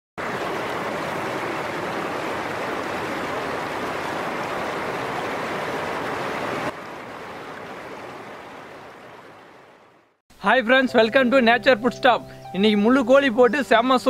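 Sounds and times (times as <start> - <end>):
stream splashing over stones: 0.2 - 10.0.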